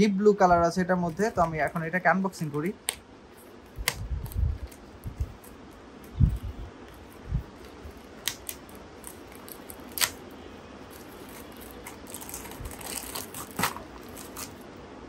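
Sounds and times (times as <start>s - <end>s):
cellophane crinkling: 0.7s - 14.8s
plastic packaging clicks and snaps: 3.7s - 5.6s, 7.6s - 10.2s, 11.0s - 14.6s.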